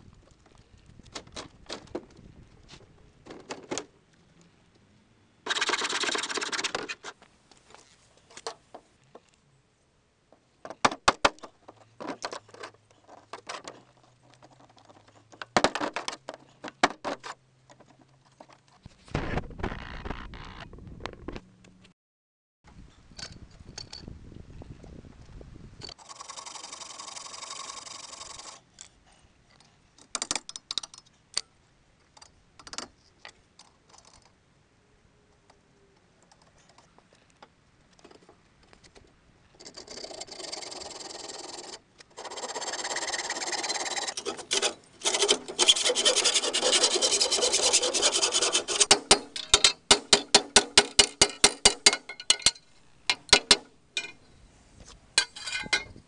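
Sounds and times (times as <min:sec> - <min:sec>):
tool scraping rusty steel: 0:39.6 - 0:54.2, 0:55.2 - 0:56.0.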